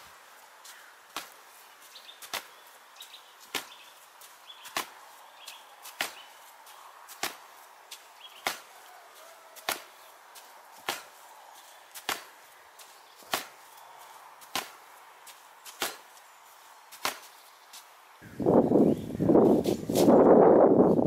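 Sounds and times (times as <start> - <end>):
gloved punches on a target: 9.6 - 10.0, 10.8 - 11.1, 12.0 - 12.3, 13.2 - 13.6.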